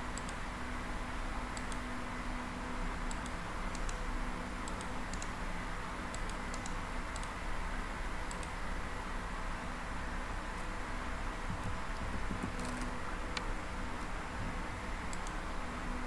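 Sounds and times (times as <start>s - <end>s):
steady hum and hiss: 0.0s - 16.0s
computer mouse clicking: 0.1s - 0.4s, 1.5s - 1.9s, 3.0s - 4.0s, 4.6s - 5.4s, 6.1s - 7.4s, 8.2s - 8.6s, 11.5s - 14.1s, 15.1s - 15.4s.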